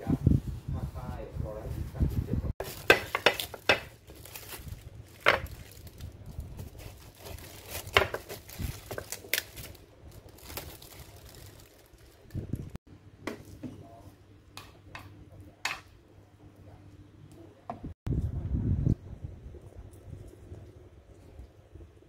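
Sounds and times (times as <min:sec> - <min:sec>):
plastic bag and cling film crinkling: 0:01.7 - 0:12.8.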